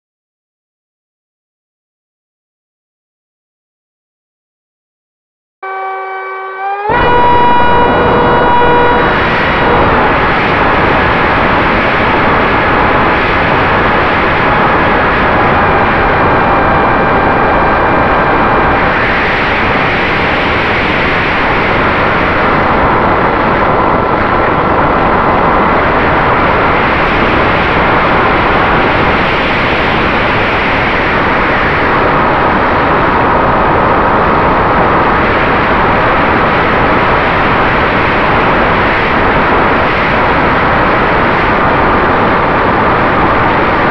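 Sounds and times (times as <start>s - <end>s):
electric motor and propeller whining: 5.7s - 20.5s
wind rushing over airframe: 6.9s - 43.9s.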